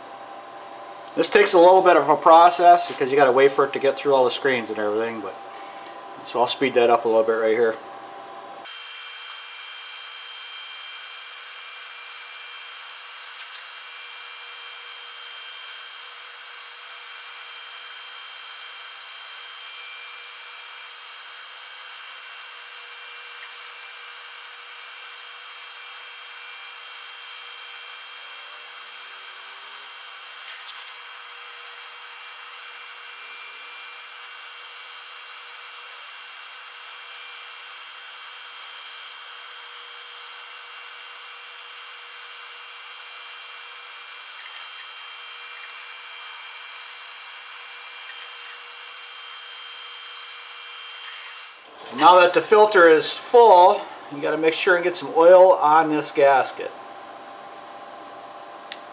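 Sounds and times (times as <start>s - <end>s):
shop background hiss: 50.9s - 56.7s.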